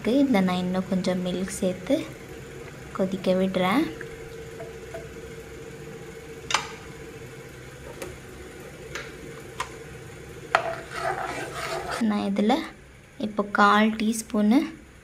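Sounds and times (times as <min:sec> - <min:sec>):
steady hum: 0:00.0 - 0:15.0
spoon scraping sauce in metal pan: 0:10.6 - 0:12.0.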